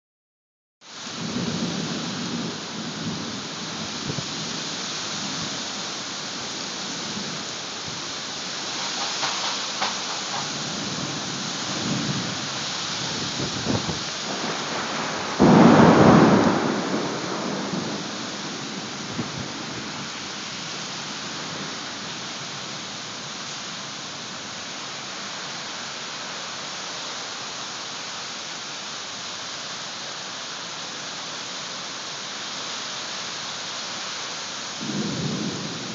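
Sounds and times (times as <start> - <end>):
heavy rain pouring: 0.9 - 35.9
thunder clap: 8.7 - 12.4, 13.1 - 19.5.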